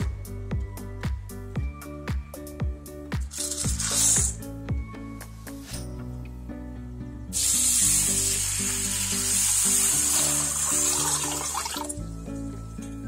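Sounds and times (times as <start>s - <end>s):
water pouring into a metal bowl: 7.4s - 12.0s.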